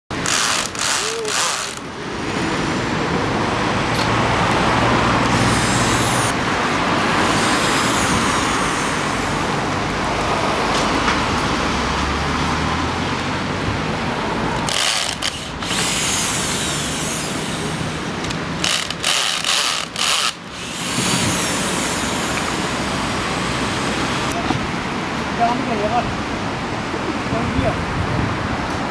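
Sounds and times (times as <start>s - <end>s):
street traffic: 0.1s - 28.9s
cordless drill unscrewing: 0.2s - 1.8s, 14.5s - 22.6s.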